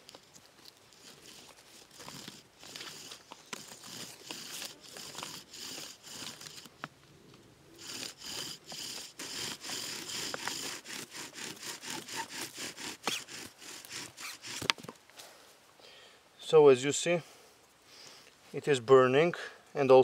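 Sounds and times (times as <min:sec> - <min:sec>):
wooden spindle grinding in socket: 0:00.9 - 0:06.9, 0:07.8 - 0:15.0.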